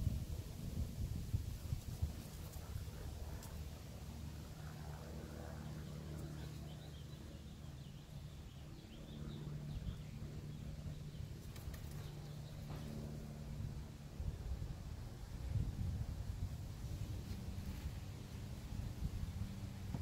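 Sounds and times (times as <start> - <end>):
steady low hum: 0.0 - 20.0
faint bird chirping: 5.3 - 13.1.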